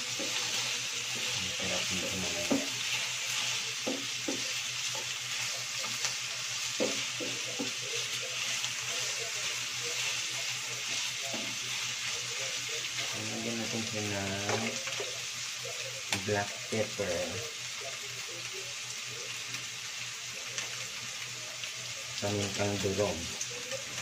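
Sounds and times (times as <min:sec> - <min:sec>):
spatula scraping pan: 0:00.0 - 0:15.2
meat and onion sizzling: 0:00.0 - 0:24.0.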